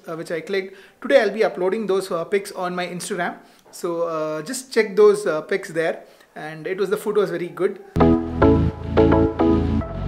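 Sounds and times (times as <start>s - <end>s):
background music with low bass: 8.0s - 10.0s.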